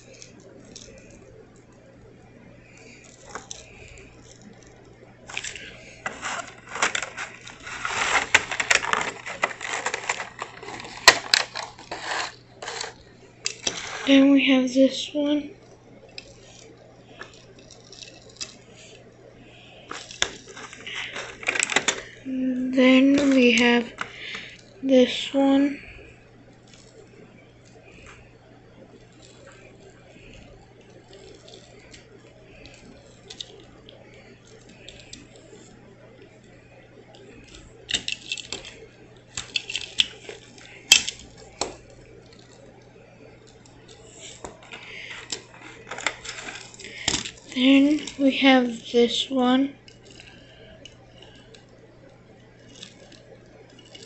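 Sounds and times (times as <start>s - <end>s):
low steady hum: 0.0s - 54.0s
plastic packaging crinkling: 2.8s - 14.2s, 19.8s - 22.2s, 22.8s - 24.8s, 37.5s - 42.7s, 43.4s - 51.8s, 52.6s - 54.0s
toy truck handling noise: 5.3s - 14.2s, 19.8s - 24.6s, 37.9s - 38.8s, 39.4s - 42.6s, 44.1s - 51.6s
small clicks: 49.8s - 51.8s.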